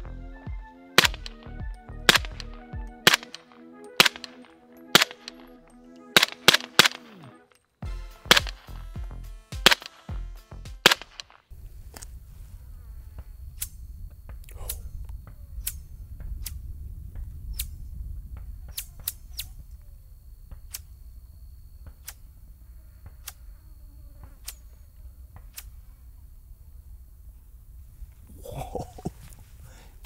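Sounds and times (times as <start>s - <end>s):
synth background music: 0.0s - 11.3s
rifle shots: 1.0s - 5.6s, 6.2s - 7.4s, 8.1s - 10.2s, 10.8s - 11.4s
low steady rumble: 11.5s - 22.8s
faint clicks: 13.1s - 21.1s, 21.8s - 23.6s, 24.2s - 26.0s.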